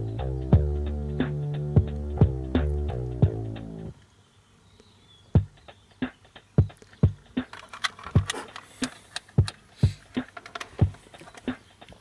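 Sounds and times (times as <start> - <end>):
sharp clicks and knocks: 6.7 - 12.0.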